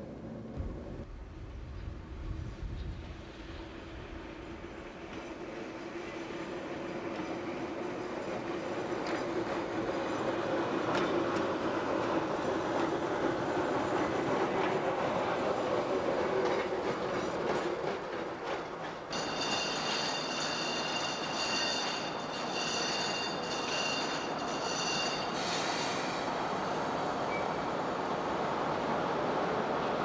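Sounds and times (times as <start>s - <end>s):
wheels clicking over rail joints: 8.4s - 12.9s.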